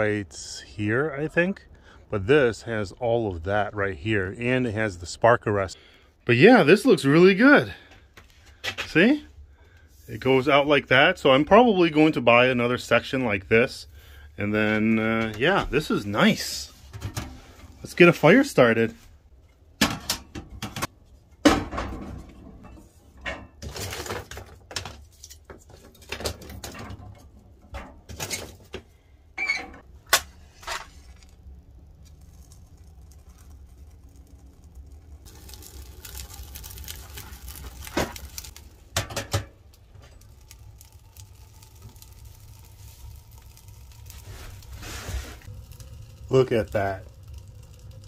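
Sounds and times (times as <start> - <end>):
fire rushing hiss: 30.4 - 39.0, 39.7 - 48.0.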